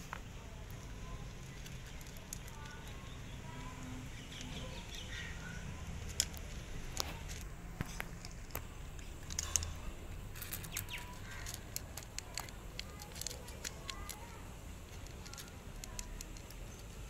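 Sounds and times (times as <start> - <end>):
cat crunching dry kibble: 0.5 - 5.1, 5.9 - 17.0.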